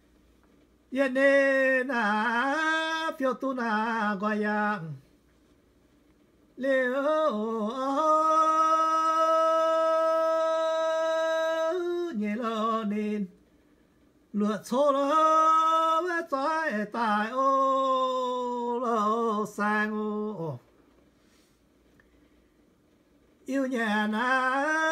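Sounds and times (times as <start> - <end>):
man singing unaccompanied: 0.9 - 5.1, 6.6 - 13.4, 14.3 - 20.7, 23.4 - 24.9.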